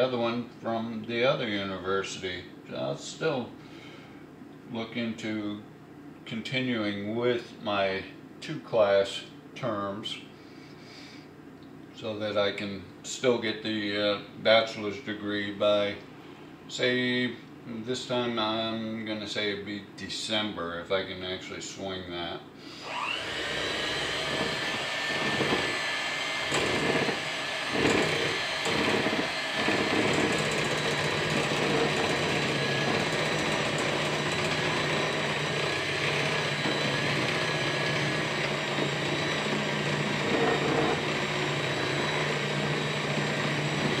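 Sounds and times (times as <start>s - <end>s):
electric hand mixer whirring: 22.8s - 44.0s.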